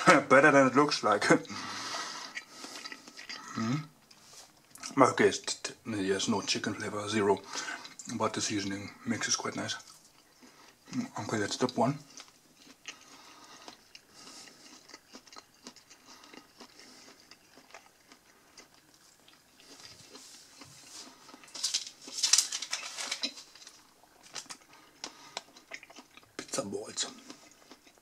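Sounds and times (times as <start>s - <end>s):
paper receipt crinkling: 19.7s - 24.8s.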